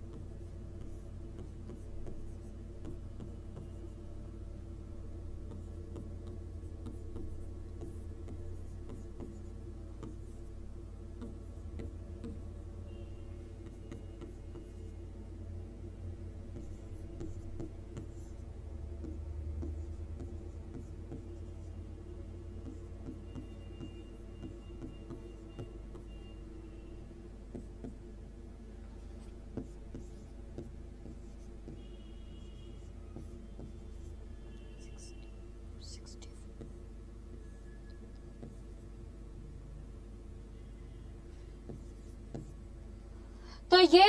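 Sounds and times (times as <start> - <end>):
stylus tapping and scratching: 0.0 - 4.1, 5.3 - 12.7, 13.6 - 15.0, 16.4 - 21.8, 22.6 - 26.2, 27.5 - 28.1, 29.0 - 32.0, 32.7 - 36.9, 37.6 - 39.0, 41.6 - 42.8
steady low hum: 0.0 - 44.0.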